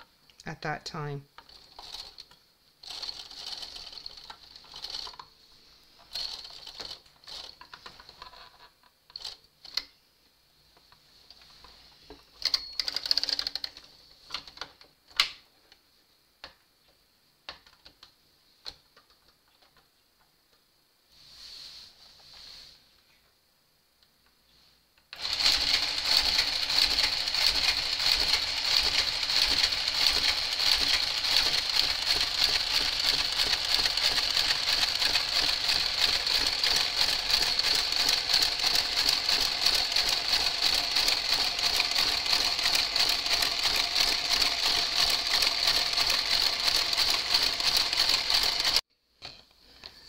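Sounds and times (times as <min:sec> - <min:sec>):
knitting machine clicking and whining: 0:01.4 - 0:05.3, 0:06.0 - 0:08.4, 0:09.1 - 0:09.9, 0:12.3 - 0:15.3, 0:25.1 - 0:48.8.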